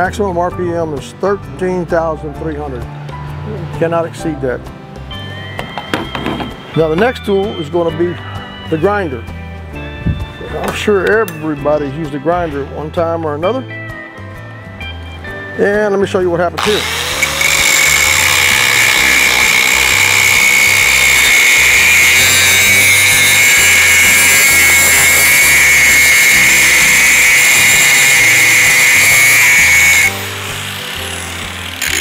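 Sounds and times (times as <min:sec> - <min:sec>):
angle grinder grinding steel: 0:16.6 - 0:32.0.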